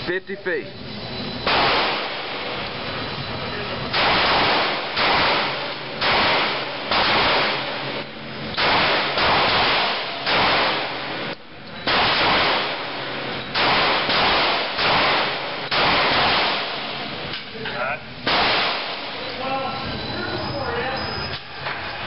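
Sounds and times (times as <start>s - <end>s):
pistol shots echoing indoors: 1.4s - 2.7s, 3.9s - 17.4s, 18.2s - 19.4s.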